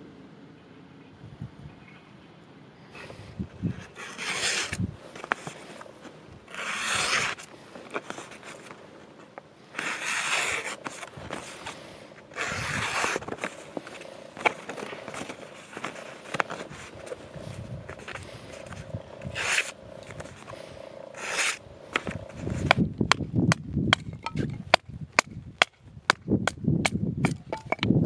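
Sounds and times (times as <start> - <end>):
paper rustling: 3.7 - 20.6
knife slicing paper: 3.9 - 4.8, 6.5 - 8.7, 9.8 - 11.6, 12.3 - 13.5, 19.3 - 19.7, 21.2 - 21.6.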